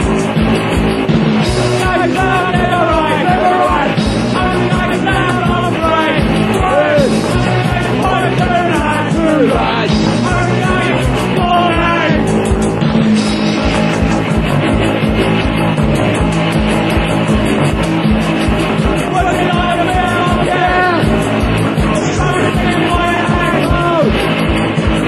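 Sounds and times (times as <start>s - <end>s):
punk band playing: 0.0s - 25.0s
person singing: 1.8s - 12.3s, 19.1s - 21.1s, 21.9s - 24.2s.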